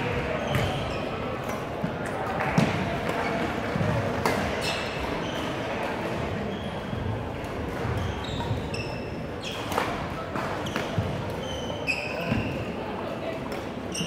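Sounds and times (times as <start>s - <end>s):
echoing gym background noise: 0.0s - 14.0s
shoes squeaking on hardwood floor: 7.8s - 9.7s, 10.6s - 12.7s.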